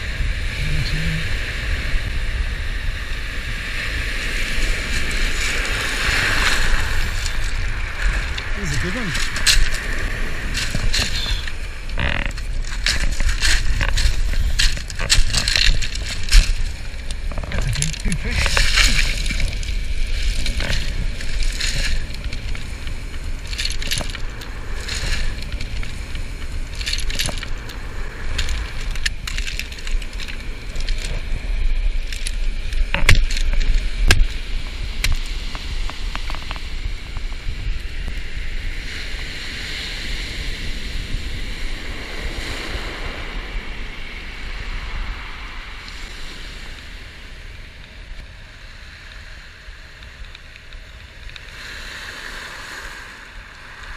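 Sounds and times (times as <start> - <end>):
wind and surf rumble: 0.0 - 53.9
pebbles clattering: 7.1 - 31.3.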